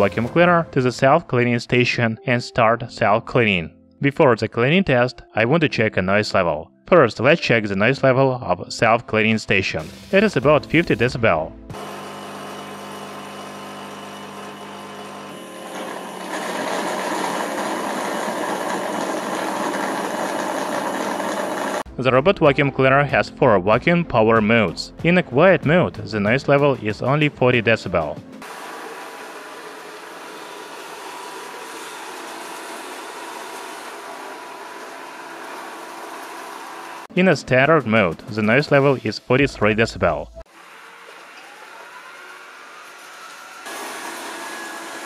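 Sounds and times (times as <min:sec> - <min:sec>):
robot vacuum suction hiss: 0:09.8 - 0:10.5
mop cleaning station humming: 0:11.7 - 0:21.9, 0:28.4 - 0:37.1, 0:40.5 - 0:45.0.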